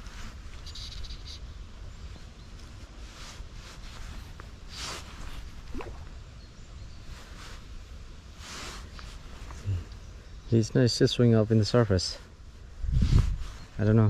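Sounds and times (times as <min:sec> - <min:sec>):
wind rumble on microphone: 0:12.6 - 0:14.0.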